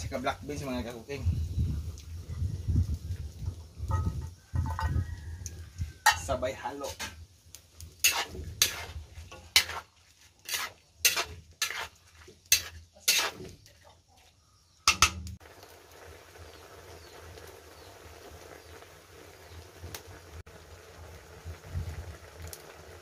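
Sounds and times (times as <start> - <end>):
metal spatula scraping a wok: 6.0 - 7.2, 8.0 - 13.6.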